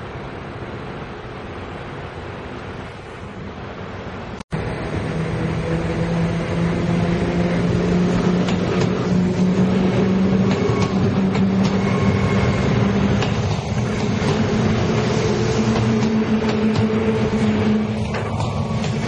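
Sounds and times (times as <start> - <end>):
train drive humming: 4.4 - 19.0.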